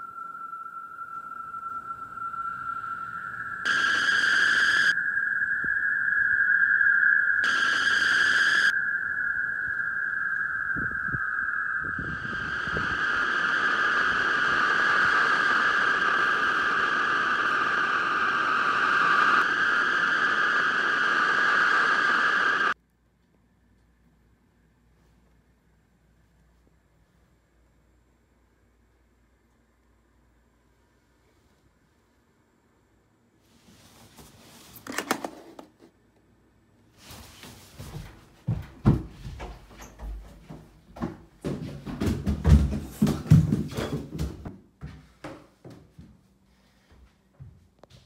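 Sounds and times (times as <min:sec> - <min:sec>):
high-pitched drone: 0:00.0 - 0:22.8.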